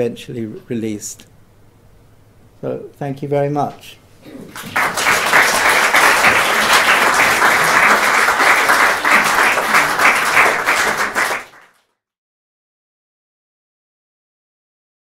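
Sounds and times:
audience applauding: 0:04.5 - 0:11.8.

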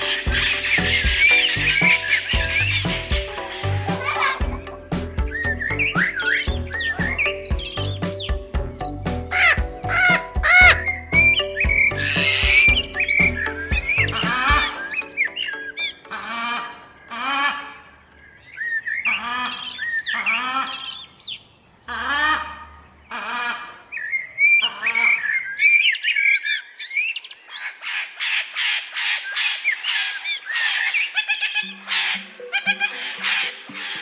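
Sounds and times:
parrots raspy chatter: 0:00.0 - 0:04.9, 0:09.3 - 0:10.8, 0:11.9 - 0:15.1, 0:27.5 - 0:34.0
parrots squawking: 0:00.0 - 0:18.0, 0:18.6 - 0:21.2, 0:21.8 - 0:34.0
parrots whistled chirps: 0:10.5 - 0:14.0.

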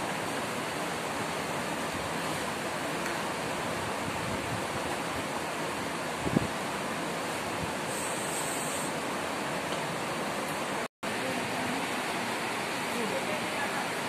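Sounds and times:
room noise hiss: 0:00.0 - 0:14.0.

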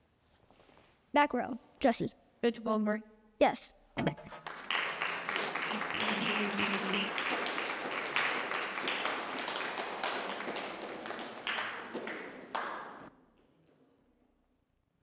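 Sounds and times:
audience applauding: 0:04.2 - 0:13.1.

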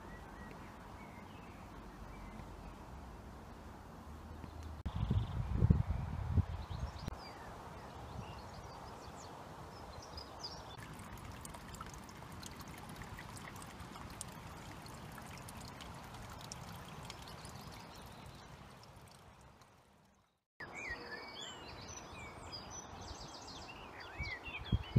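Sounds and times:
small stream trickling: 0:06.5 - 0:20.7.

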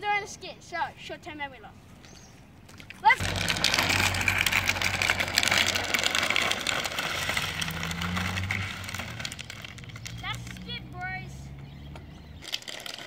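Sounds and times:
plastic wheels scraping asphalt: 0:02.7 - 0:13.0.

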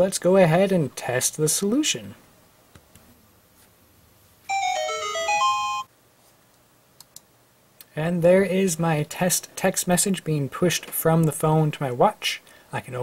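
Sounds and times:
phone notification tone: 0:04.5 - 0:05.9
faint clicks: 0:06.5 - 0:07.9.

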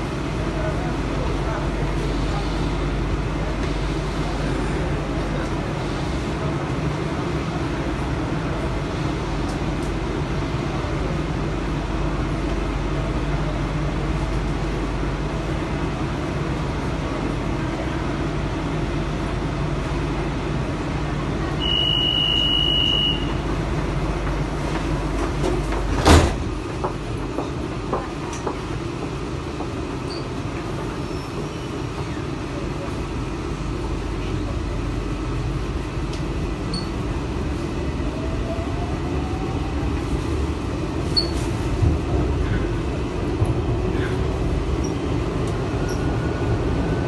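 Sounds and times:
metro train car humming: 0:00.0 - 0:47.0
sliding doors shutting with thud: 0:24.8 - 0:27.0.

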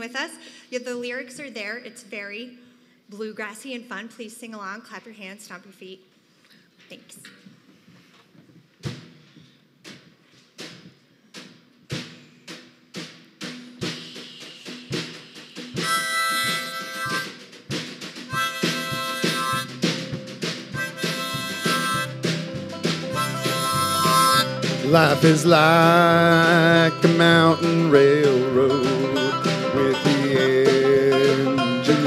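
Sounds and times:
drum strokes speeding up: 0:10.1 - 0:32.0
harmonica chord: 0:14.2 - 0:17.4, 0:18.3 - 0:32.0
bluegrass band playing: 0:15.8 - 0:17.4, 0:18.3 - 0:32.0.

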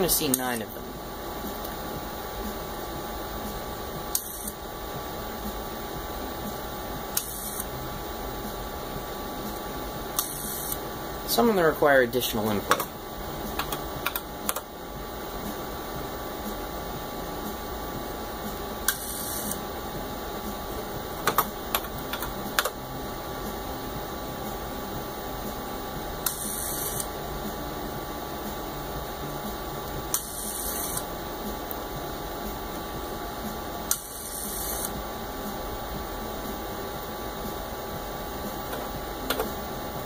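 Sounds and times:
steady background hum: 0:00.0 - 0:40.0
rotary dial whirring: 0:18.9 - 0:19.7, 0:26.2 - 0:27.2, 0:29.9 - 0:31.1, 0:33.9 - 0:35.0.

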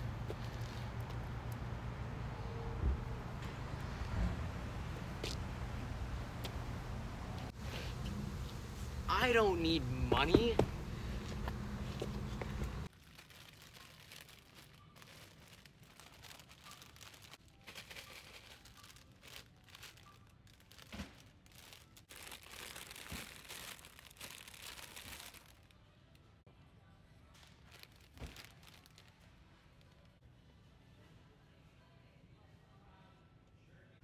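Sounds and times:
foil bags crinkling: 0:12.8 - 0:25.7, 0:27.4 - 0:29.2.

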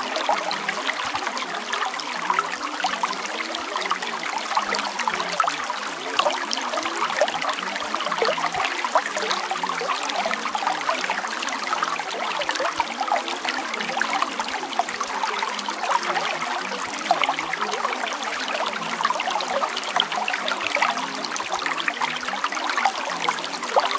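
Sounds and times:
water trickling: 0:00.0 - 0:23.9.

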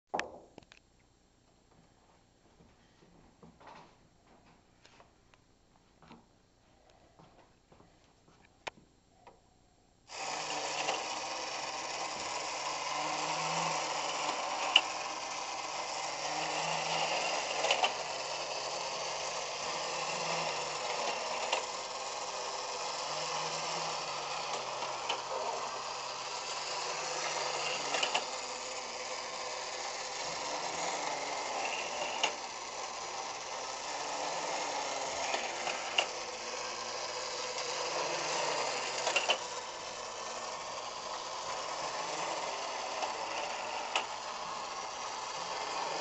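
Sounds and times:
toy mechanism rattling whir: 0:10.1 - 0:46.0.

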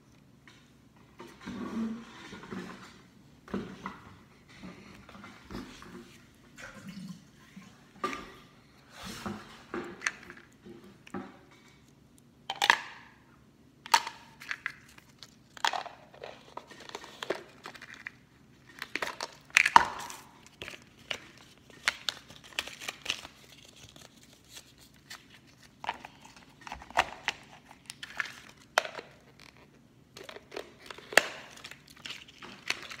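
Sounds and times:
packaging crinkling and tearing: 0:14.4 - 0:33.0.

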